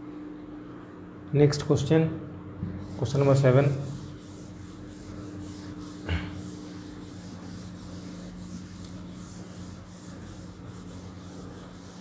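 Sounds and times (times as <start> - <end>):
duster rubbing on chalkboard: 2.7 - 12.0.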